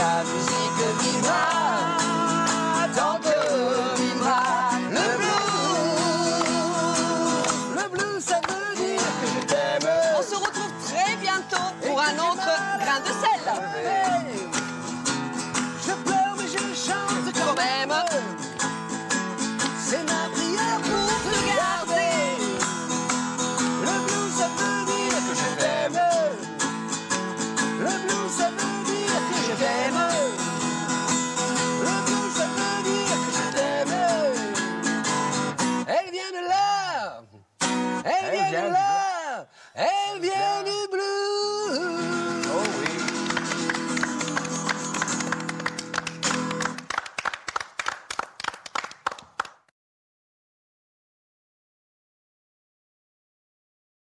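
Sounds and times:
strummed acoustic guitar music: 0.0s - 35.9s, 37.6s - 39.1s, 41.6s - 46.8s
hand clapping: 0.4s - 12.2s, 13.5s - 25.6s, 42.2s - 49.7s.

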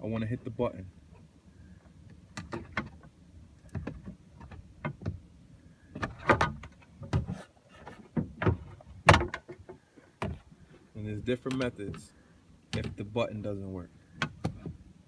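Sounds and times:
rod tapping and scraping panel: 12.7s - 13.1s.

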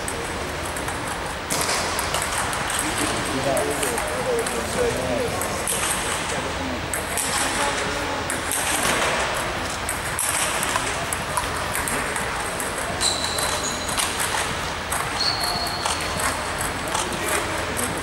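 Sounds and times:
table tennis balls clicking: 0.0s - 18.0s
short high squeaks: 13.0s - 14.0s, 15.2s - 16.2s.

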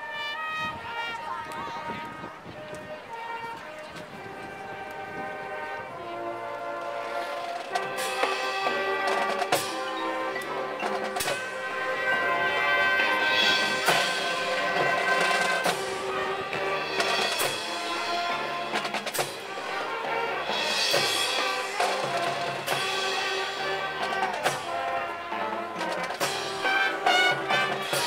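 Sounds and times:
wind and brass chords: 0.0s - 28.0s
drum and percussion hits: 7.4s - 12.3s, 13.0s - 28.0s.

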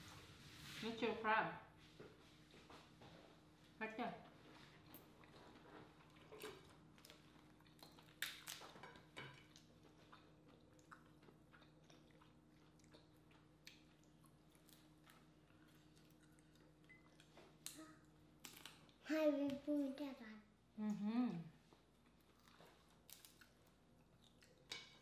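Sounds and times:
faint chewing: 4.2s - 19.0s, 21.6s - 25.0s.

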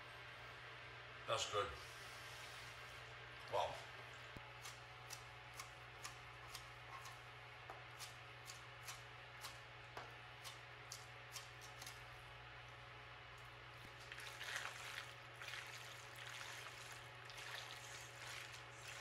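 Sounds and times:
soft wet stirring: 13.4s - 19.0s.

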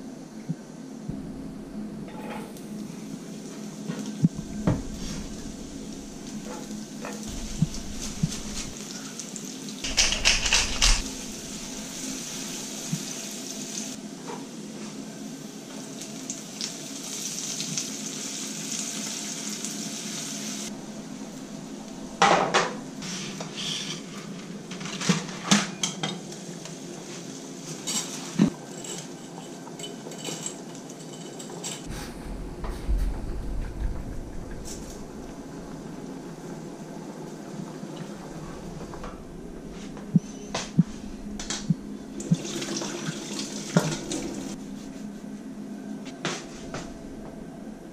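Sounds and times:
pans and utensils clinking: 2.1s - 2.6s, 9.8s - 11.1s, 27.7s - 31.9s
garlic sizzling in oil: 11.0s - 14.0s, 15.4s - 20.7s.

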